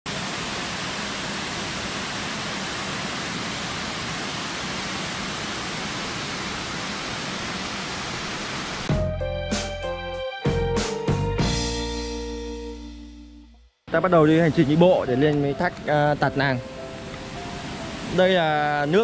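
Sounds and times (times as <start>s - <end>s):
waterfall rushing: 0.1s - 8.9s, 13.9s - 19.0s.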